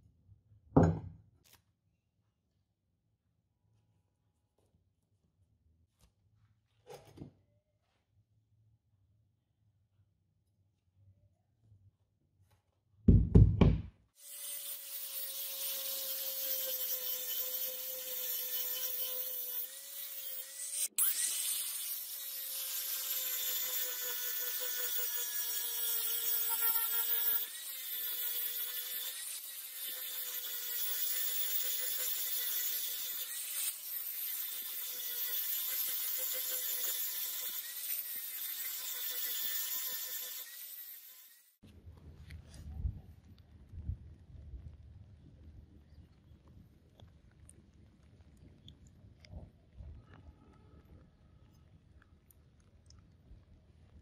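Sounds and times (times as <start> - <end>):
angle grinder grinding metal: 14.2 - 41.6.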